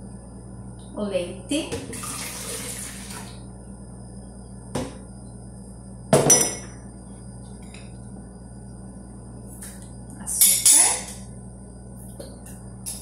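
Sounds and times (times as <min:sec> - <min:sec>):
milk pouring and splashing: 0:02.0 - 0:03.3.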